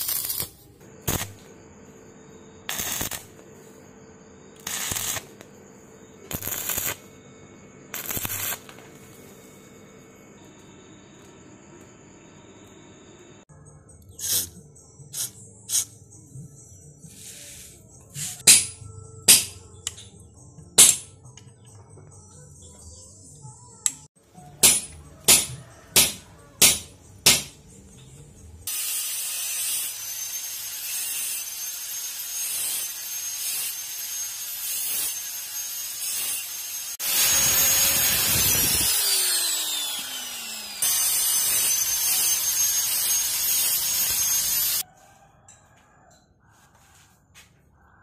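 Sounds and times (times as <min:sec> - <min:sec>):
sharp metallic knocks: 0:18.4 - 0:19.6, 0:24.6 - 0:27.6
power tool whining: 0:28.7 - 0:44.8.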